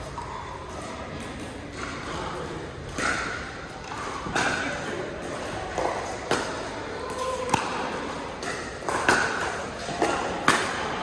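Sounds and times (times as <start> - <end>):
paddles hitting plastic ball: 2.8 - 11.0.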